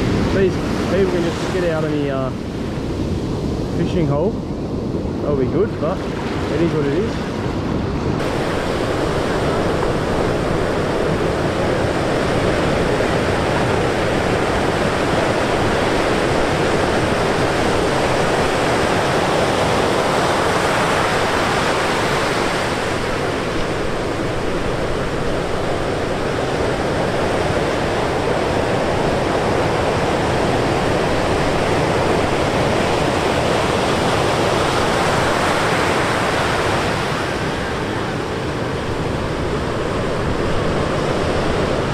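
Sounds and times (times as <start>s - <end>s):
ocean waves breaking on beach: 0.0s - 41.9s.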